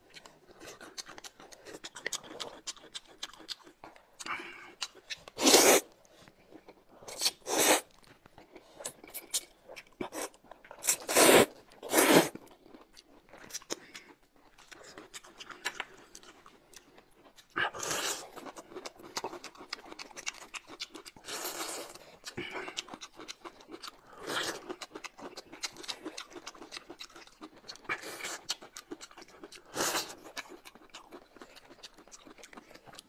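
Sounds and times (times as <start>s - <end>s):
chewing: 0.0s - 33.0s
slurping noodles: 5.4s - 5.9s, 7.1s - 7.9s, 10.0s - 12.4s.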